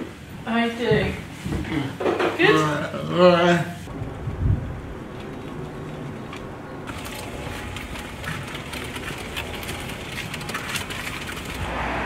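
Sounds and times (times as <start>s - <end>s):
wheelchair electric motors running: 5.1s - 11.9s.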